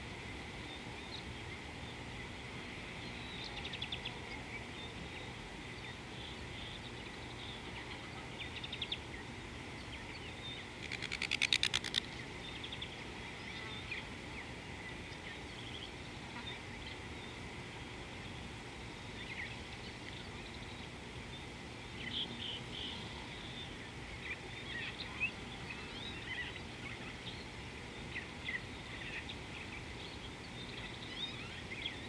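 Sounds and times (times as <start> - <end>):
rapid repeated bird notes: 10.1 - 17.5
rattling bird trill: 10.8 - 12.1
birds chattering: 10.8 - 12.8.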